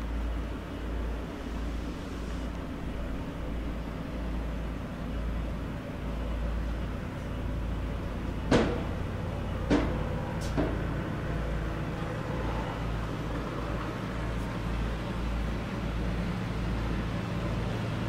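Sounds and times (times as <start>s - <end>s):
low outdoor background rumble: 0.0s - 18.0s
sharp knocks: 8.5s - 9.0s, 9.6s - 10.8s.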